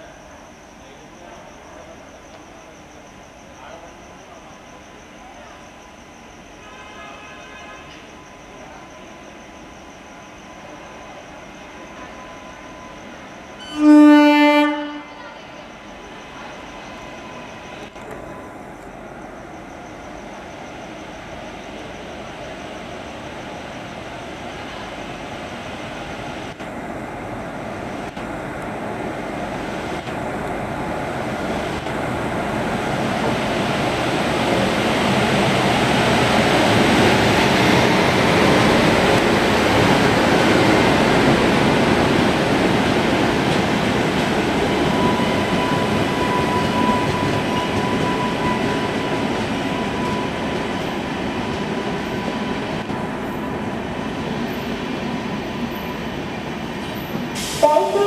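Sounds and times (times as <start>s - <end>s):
train rumbling past: 0.0s - 58.0s
thin steady squeal: 15.1s - 24.2s.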